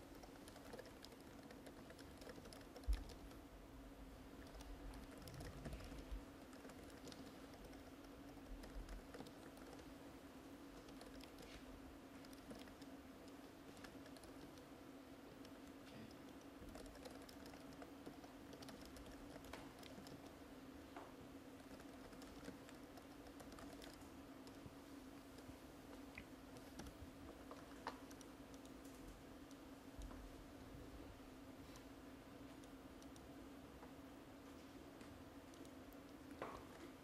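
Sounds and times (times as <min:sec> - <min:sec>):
laptop keyboard tapping: 0:00.0 - 0:03.4, 0:04.4 - 0:09.9, 0:12.2 - 0:14.7, 0:15.4 - 0:20.4, 0:21.6 - 0:24.7
steady low hum: 0:00.0 - 0:37.0.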